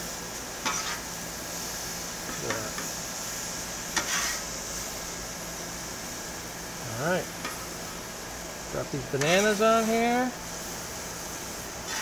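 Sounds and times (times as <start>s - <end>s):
food sizzling on a griddle: 0.0s - 12.0s
metal spatula scraping: 0.6s - 1.1s, 3.9s - 4.5s.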